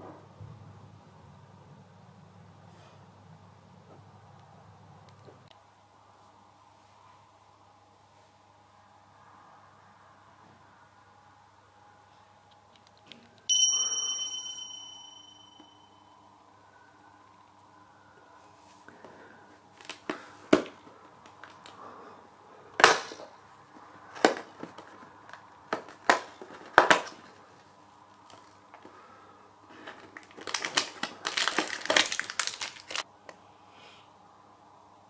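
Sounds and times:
plastic wrapper crackling: 0:30.0 - 0:33.0
cardboard tearing and snapping: 0:30.2 - 0:33.0.

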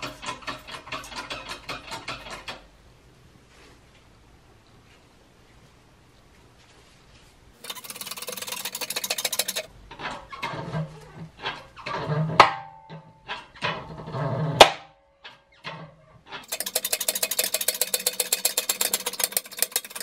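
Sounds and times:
fast ratchet clicking: 0:07.6 - 0:09.7, 0:16.4 - 0:20.0
sharp metal cracks: 0:16.3 - 0:20.0.

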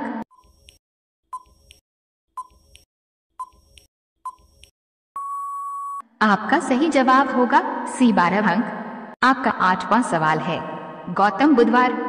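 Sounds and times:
long steady beep: 0:05.2 - 0:06.0.

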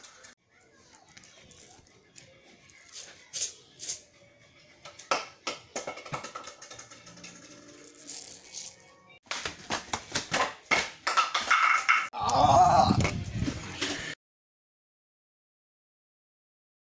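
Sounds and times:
music with clicking percussion: 0:04.8 - 0:09.5.

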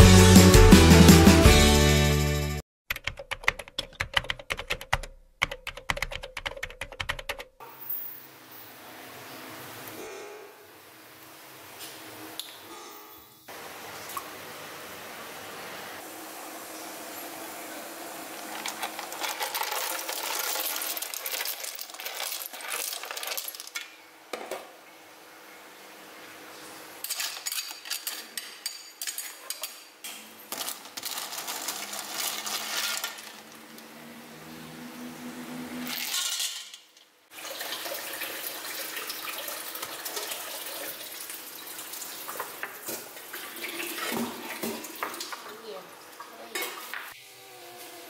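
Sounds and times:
keyboard typing: 0:02.9 - 0:07.5
shells rattling into pot: 0:18.6 - 0:23.8, 0:27.0 - 0:29.8.

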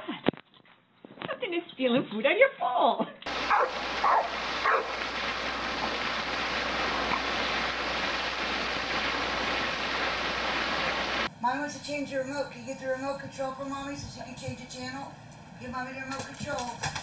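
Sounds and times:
fountain water splashing: 0:03.3 - 0:11.3
dog yipping: 0:03.5 - 0:05.0.

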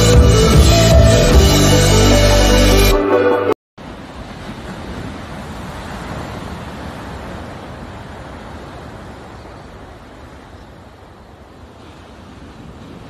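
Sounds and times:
ocean surf washing onto beach: 0:03.8 - 0:13.0.

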